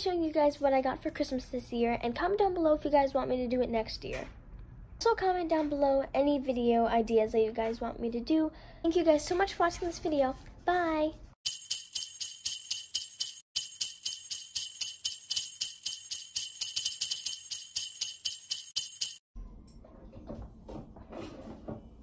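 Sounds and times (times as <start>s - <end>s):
sleigh bells jingling: 11.4s - 19.3s.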